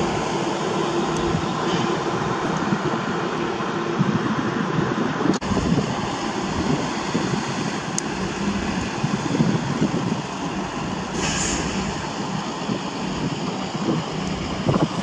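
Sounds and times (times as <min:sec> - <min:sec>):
diesel engines running: 0:00.0 - 0:15.0
steel wheels rumbling on rails: 0:00.0 - 0:15.0
short hiss: 0:11.1 - 0:11.9.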